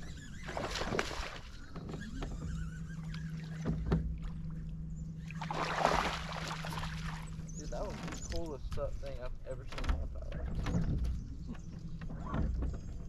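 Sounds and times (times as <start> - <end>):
electric trolling motor humming: 0.0 - 13.0
knocks on boat: 3.5 - 4.2, 9.7 - 13.0.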